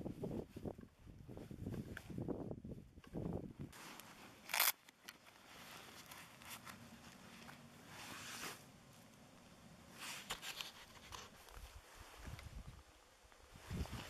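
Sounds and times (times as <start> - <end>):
gloved hands rustling: 3.1 - 8.7.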